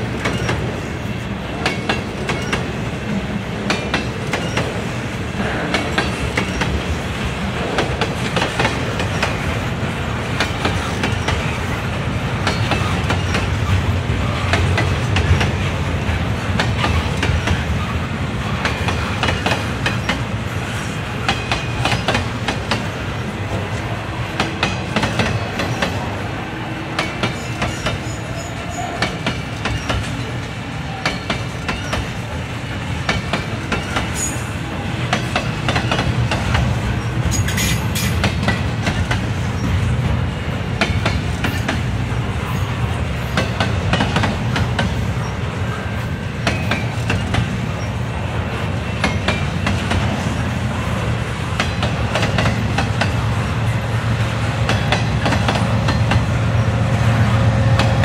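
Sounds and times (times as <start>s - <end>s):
diesel locomotive drone: 0.0s - 58.0s
train rumbling past: 0.0s - 58.0s
high wheel squeals: 27.3s - 29.1s.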